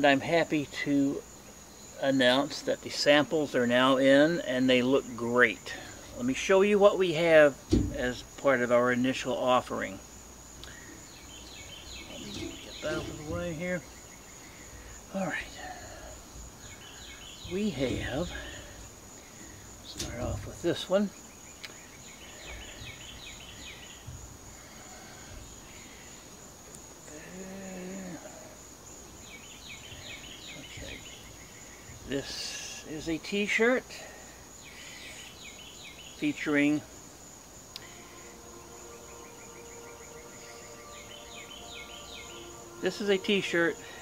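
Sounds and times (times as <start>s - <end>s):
high-pitched insect drone: 3.8s - 28.8s, 36.3s - 44.0s
bird chirping: 5.2s - 26.9s, 29.0s - 33.4s, 34.5s - 36.9s, 37.6s - 44.0s.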